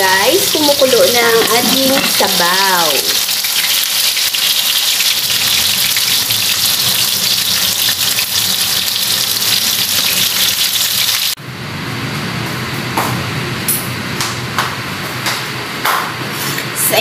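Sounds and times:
fish sizzling in hot oil: 0:00.0 - 0:11.4.

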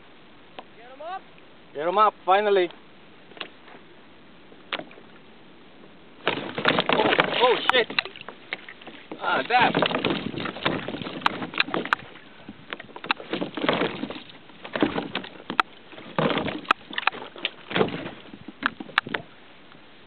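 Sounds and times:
gear knocking against hull: 0:06.2 - 0:12.1, 0:12.7 - 0:19.2
water splashing: 0:06.2 - 0:19.4.

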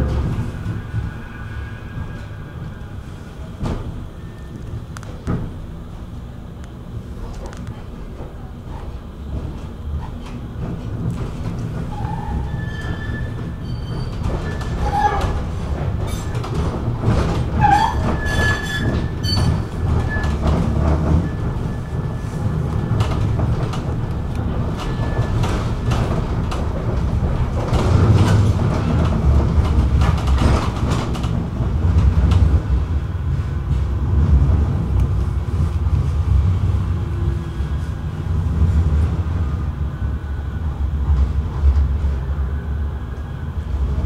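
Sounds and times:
tram wheels rumbling on rail: 0:00.0 - 0:44.0
high wheel squeal: 0:00.5 - 0:03.5, 0:04.1 - 0:04.7, 0:11.9 - 0:15.4, 0:17.6 - 0:20.5.

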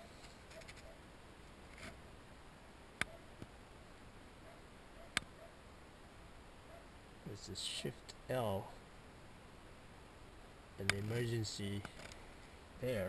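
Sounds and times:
background hiss: 0:00.0 - 0:13.0
sharp clicks: 0:10.8 - 0:11.1.

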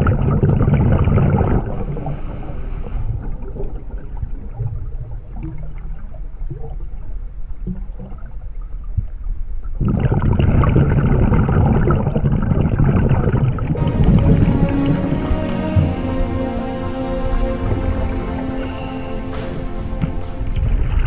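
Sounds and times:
muffled underwater rumble: 0:00.0 - 0:16.2.

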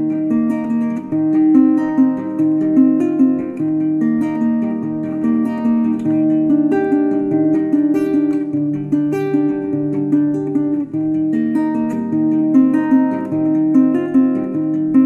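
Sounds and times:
plucked acoustic guitar melody: 0:00.0 - 0:15.0.

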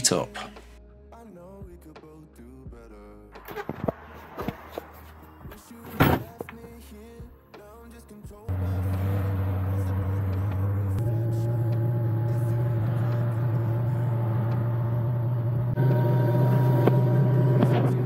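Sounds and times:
diesel heater humming: 0:08.5 - 0:18.0.

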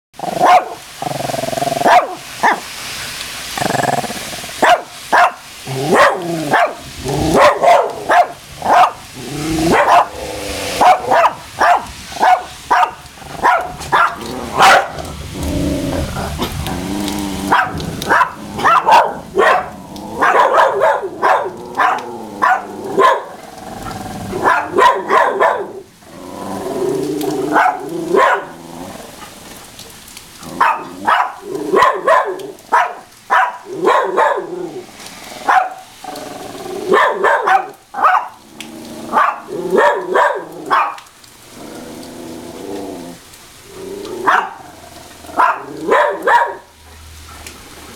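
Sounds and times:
dogs barking: 0:00.2 - 0:01.0, 0:01.7 - 0:02.7, 0:04.5 - 0:15.2, 0:16.4 - 0:26.0, 0:27.2 - 0:29.3, 0:30.4 - 0:34.8, 0:35.4 - 0:36.0, 0:36.8 - 0:38.4, 0:39.1 - 0:41.1, 0:44.1 - 0:47.6.

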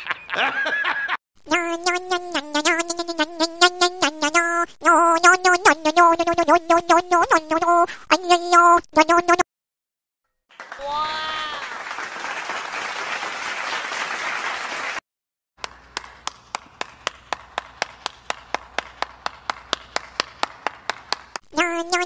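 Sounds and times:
crowd applause: 0:10.5 - 0:15.0, 0:15.6 - 0:21.4
one person clapping steadily: 0:15.6 - 0:21.5.

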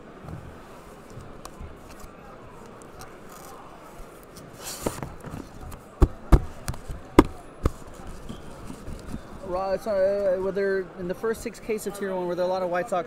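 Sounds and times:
cardboard rustle and scrape: 0:04.4 - 0:07.0, 0:07.7 - 0:09.5.

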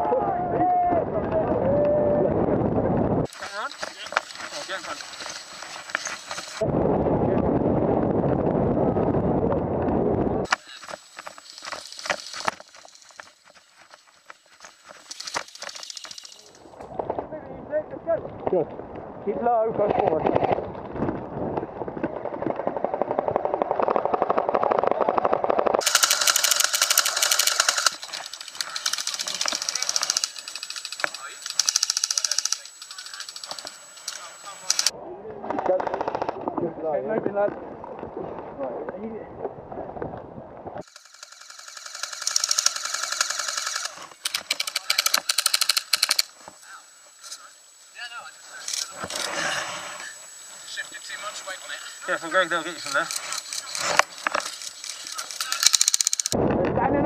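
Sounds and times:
higher-pitched rapid fire rattle: 0:03.3 - 0:06.6, 0:10.5 - 0:16.7, 0:25.8 - 0:34.9, 0:40.8 - 0:46.3, 0:52.9 - 0:56.4
airsoft guns rapid fire: 0:15.0 - 0:16.5, 0:22.7 - 0:34.9, 0:40.8 - 0:46.3, 0:55.4 - 0:56.4.

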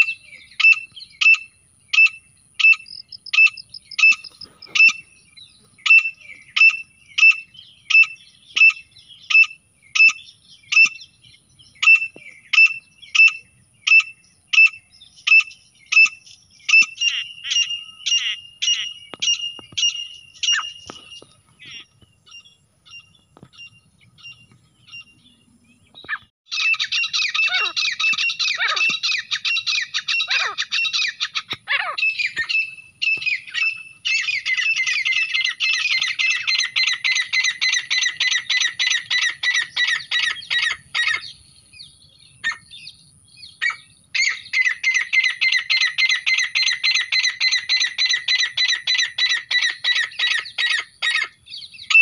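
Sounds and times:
bird calling shrill notes: 0:00.0 - 0:05.1, 0:05.8 - 0:25.2, 0:26.0 - 0:41.4.

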